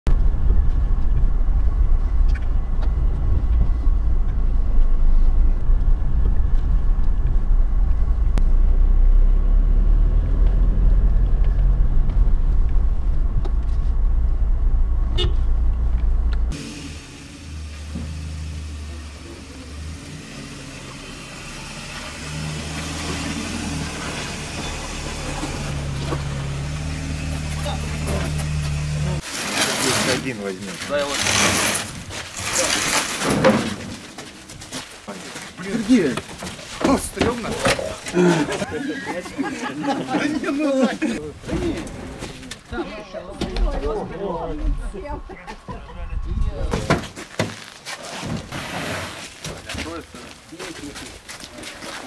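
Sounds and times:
vehicle engines idling: 0:00.1 - 0:29.2.

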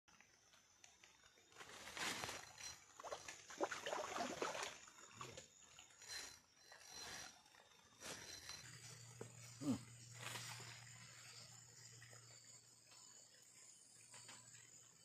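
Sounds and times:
fish splashing in water: 0:03.0 - 0:04.9.

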